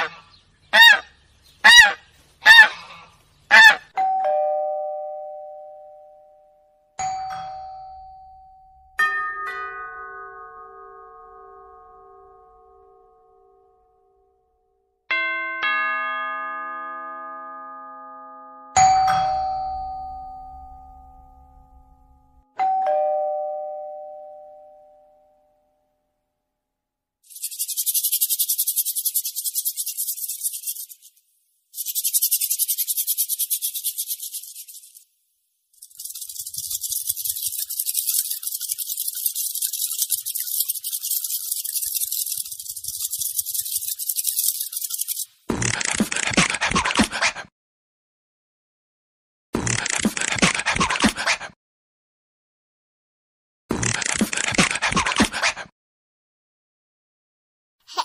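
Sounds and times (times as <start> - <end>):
two-note doorbell chime: 4.0 - 13.8, 15.1 - 25.9
crickets chirping: 35.8 - 45.2.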